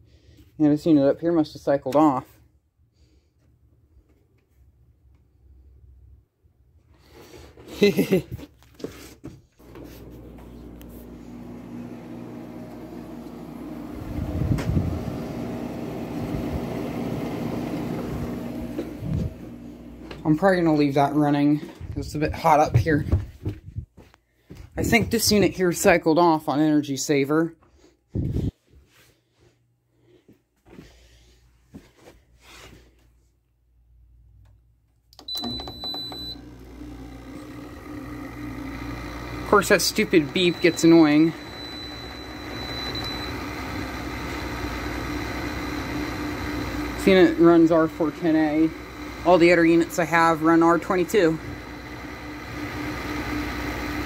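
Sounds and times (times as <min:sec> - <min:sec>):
high beep: 0:40.4 - 0:43.4.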